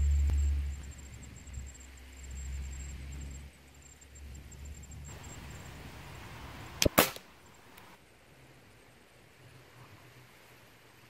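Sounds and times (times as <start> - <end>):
air rifle shot: 6.7 - 7.4
pellet striking paper target: 6.8 - 7.3.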